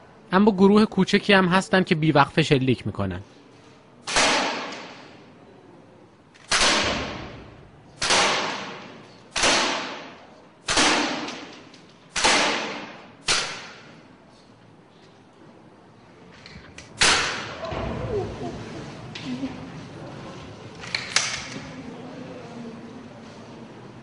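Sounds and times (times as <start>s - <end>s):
air gun shots: 4.0s - 5.1s, 6.4s - 14.0s, 16.9s - 17.6s.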